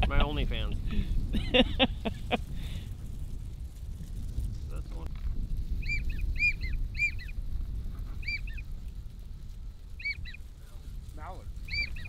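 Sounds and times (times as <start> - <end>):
duck whistles: 5.8 - 7.4, 8.1 - 8.6, 10.0 - 10.4, 11.7 - 12.0.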